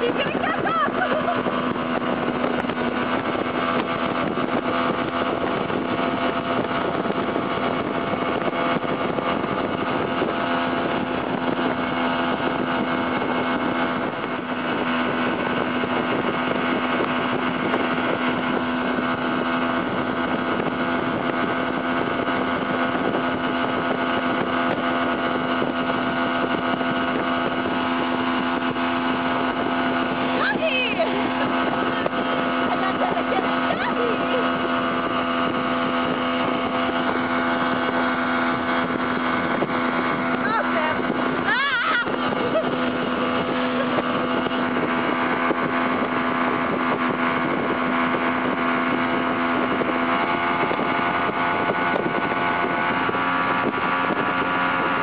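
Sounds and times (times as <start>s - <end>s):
motorboat engine humming: 0.0s - 55.0s
water rushing: 0.0s - 55.0s
wind rushing: 0.0s - 55.0s.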